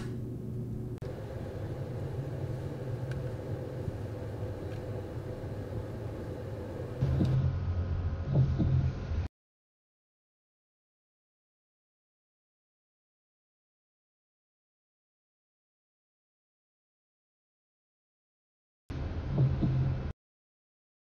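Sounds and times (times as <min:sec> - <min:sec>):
low rumble and hum: 0:00.0 - 0:09.3, 0:18.9 - 0:20.1.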